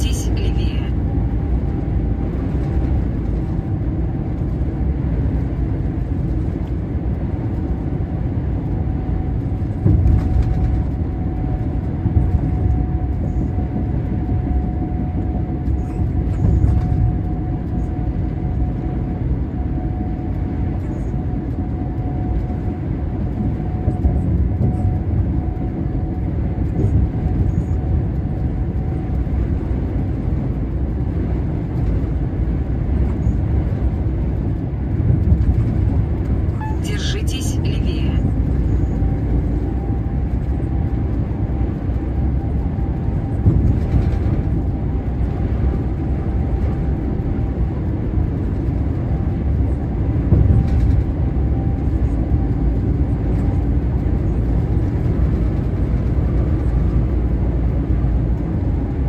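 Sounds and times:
truck engine and tyres rumbling: 0:00.0 - 0:59.0.

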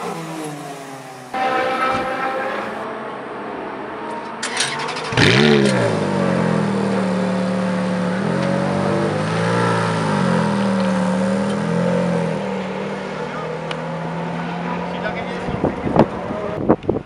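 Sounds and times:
car pulling away slowly: 0:05.0 - 0:16.1
car exhaust idling: 0:06.1 - 0:13.8.

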